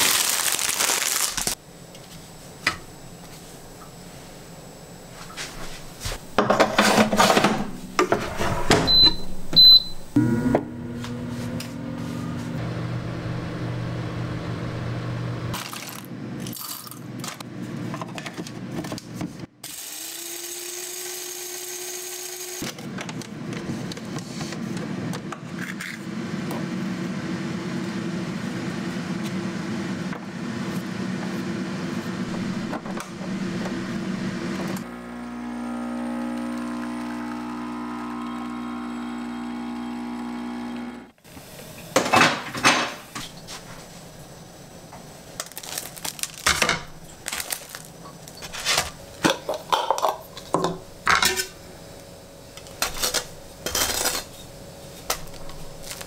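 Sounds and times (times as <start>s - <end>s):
appliance motor hum: 1.4s - 16.6s, 17.2s - 42.1s, 43.1s - 56.0s
kitchen clattering: 6.3s - 10.0s, 41.8s - 43.4s, 45.4s - 51.6s
short electronic beeps: 8.9s - 10.0s.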